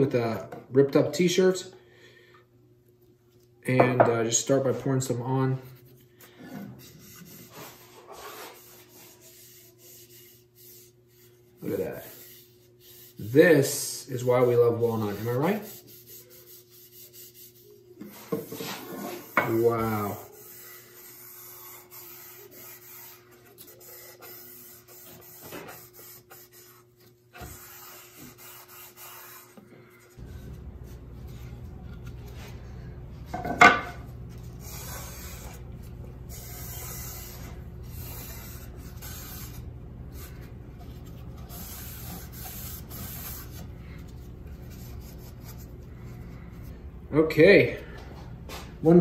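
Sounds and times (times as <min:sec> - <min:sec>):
low steady hum: 0:22.1 - 0:49.0.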